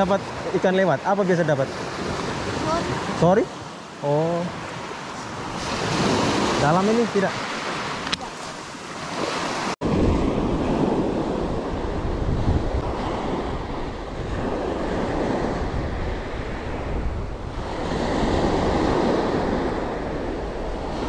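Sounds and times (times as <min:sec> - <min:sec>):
surf washing up pebble beach: 0:00.0 - 0:21.0
wind buffeting microphone: 0:05.2 - 0:21.0.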